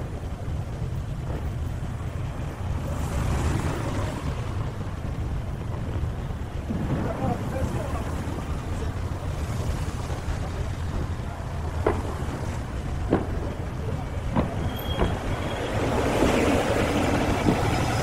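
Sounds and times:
fireworks crackling: 0:00.0 - 0:18.0
firework bangs: 0:05.0 - 0:08.4, 0:09.6 - 0:18.0.

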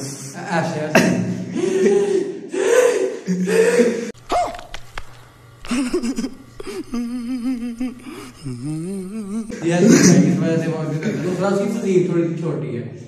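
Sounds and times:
man making wobbling vocal sounds: 0:05.7 - 0:10.2
man speaking: 0:09.5 - 0:12.8.

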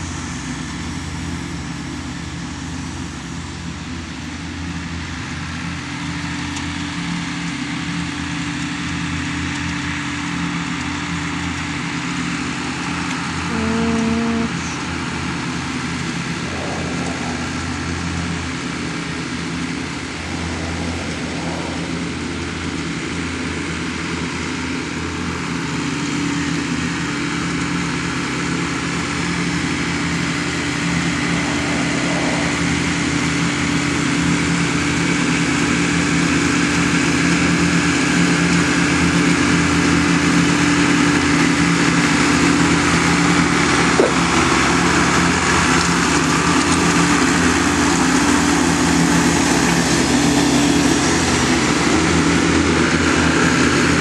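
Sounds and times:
mower engine running: 0:00.0 - 0:54.0
steady low tone: 0:13.5 - 0:24.5, 0:29.0 - 0:34.8.

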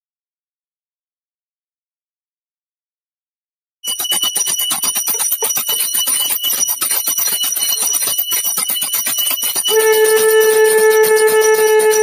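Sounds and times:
hand bell rung rapidly: 0:03.8 - 0:12.0.

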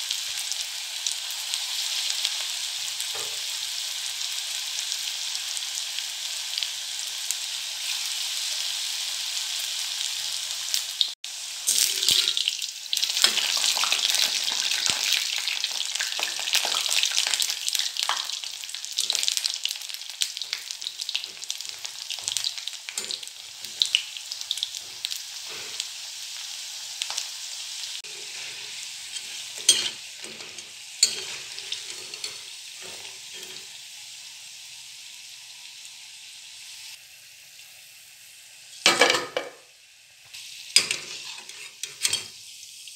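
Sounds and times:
food sizzling in hot oil: 0:00.0 - 0:42.9
metal spatula scraping pan: 0:11.7 - 0:12.5, 0:28.0 - 0:33.8, 0:40.8 - 0:42.3.

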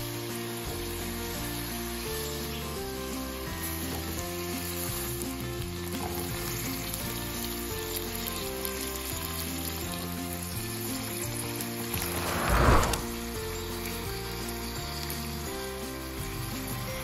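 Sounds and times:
crackling hiss: 0:11.6 - 0:13.5
swell of noise: 0:11.9 - 0:13.3.

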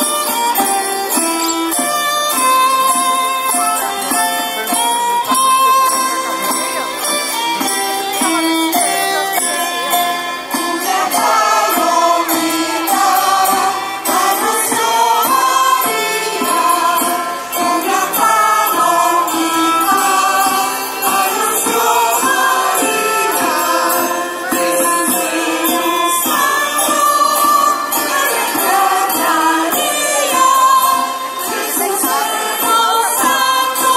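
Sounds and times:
light rhythmic beat: 0:00.0 - 0:33.9
mixed choir singing: 0:10.5 - 0:33.9.

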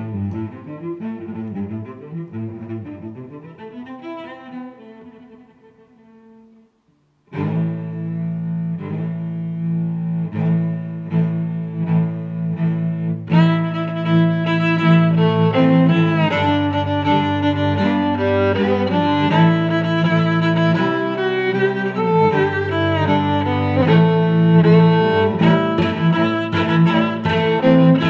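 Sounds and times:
bowed string music with cello: 0:00.0 - 0:28.0
higher strings: 0:08.7 - 0:28.0.

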